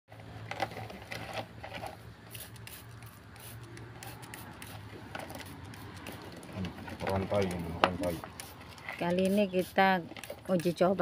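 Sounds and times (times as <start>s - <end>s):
spray bottle spraying: 2.3s - 6.5s, 7.4s - 11.0s.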